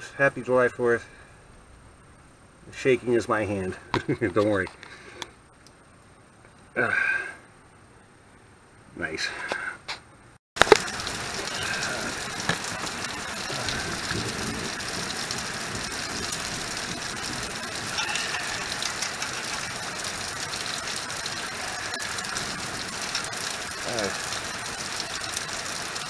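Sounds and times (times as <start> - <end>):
rain falling: 10.6 - 26.0.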